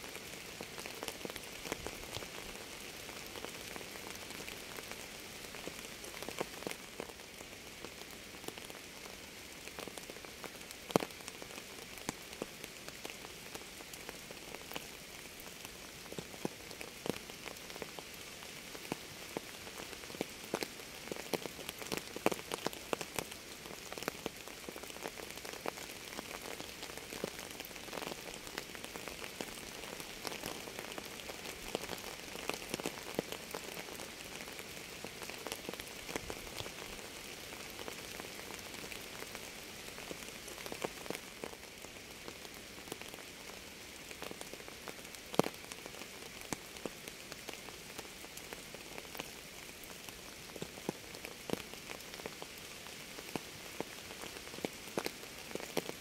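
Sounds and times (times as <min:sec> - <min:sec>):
steady rain hiss: 0:00.0 - 0:56.0
raindrops ticking: 0:18.9 - 0:39.4.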